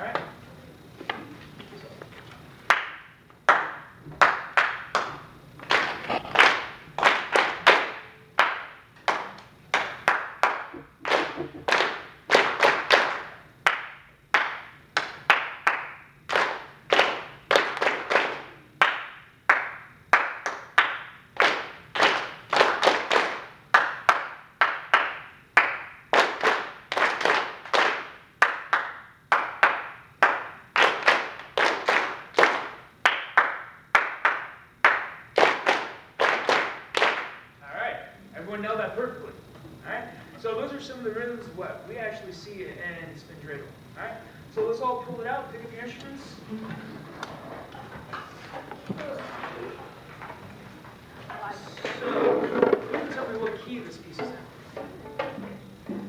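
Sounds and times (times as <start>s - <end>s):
rhythmic hand clapping: 2.6s - 37.5s, 52.5s - 56.0s.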